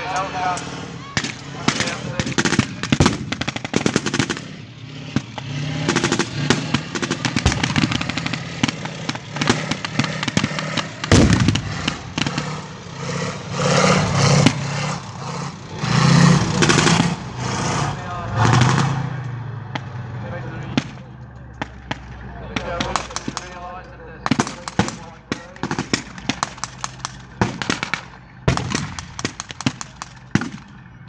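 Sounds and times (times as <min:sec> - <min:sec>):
rifle shots: 0:00.6 - 0:14.9, 0:24.2 - 0:30.8
heavy boom: 0:05.9 - 0:13.1.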